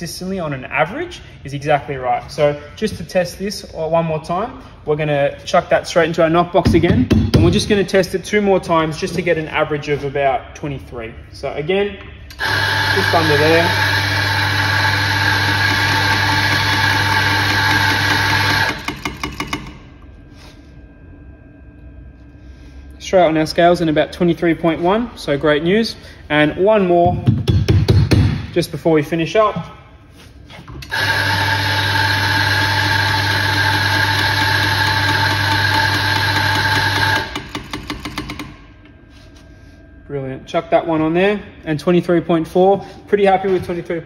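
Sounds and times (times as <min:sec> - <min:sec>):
coffee grinder motor running: 0:12.3 - 0:19.1, 0:30.8 - 0:38.1.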